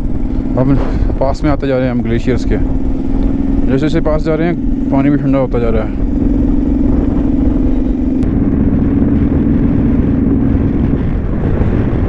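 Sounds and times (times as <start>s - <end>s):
motorcycle engine running: 0.0s - 12.0s
wind rumble on microphone: 0.0s - 12.0s.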